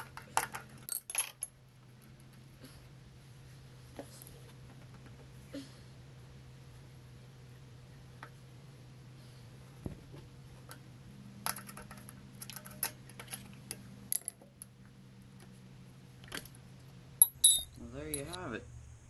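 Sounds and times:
steady low hum: 0.0s - 19.0s
metal tools clinking: 17.2s - 18.4s.

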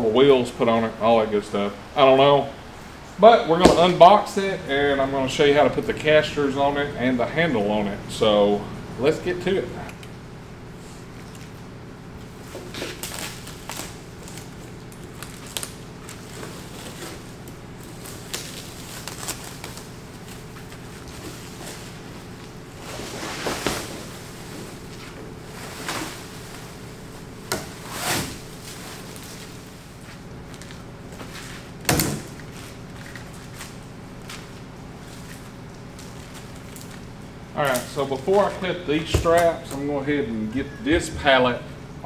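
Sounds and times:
steady low hum: 0.0s - 42.0s
plastic wrap rustling and ripping: 12.4s - 38.6s.

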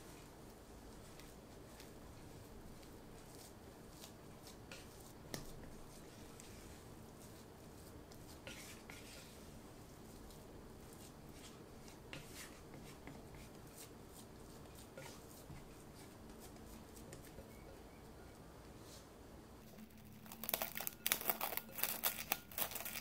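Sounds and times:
spatula scraping dough in bowl: 3.2s - 17.7s.

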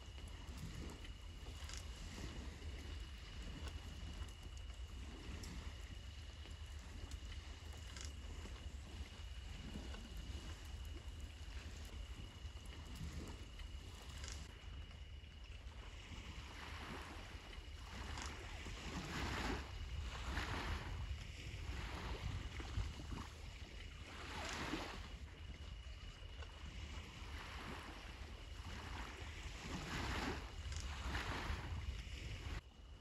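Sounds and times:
wind rumble on microphone: 0.0s - 33.0s
sea waves washing onto shore: 16.3s - 25.4s.

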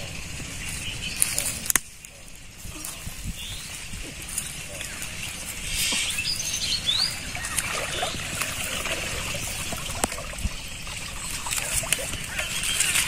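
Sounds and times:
water trickling and splashing: 2.6s - 13.0s.

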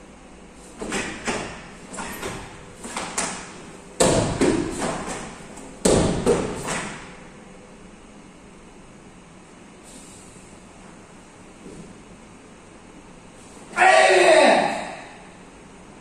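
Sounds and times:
bare feet stamping on wooden floor: 0.8s - 7.0s.

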